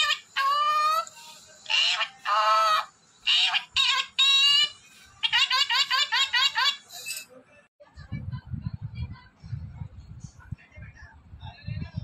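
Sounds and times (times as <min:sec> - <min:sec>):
parrot whistling squawks: 0:00.0 - 0:07.2.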